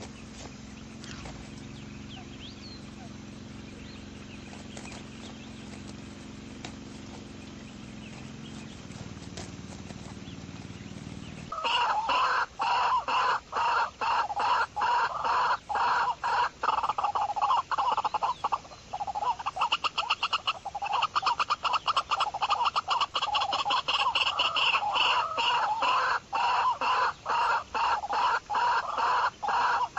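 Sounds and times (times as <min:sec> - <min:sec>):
fowl clucking: 0:11.5 - 0:29.9.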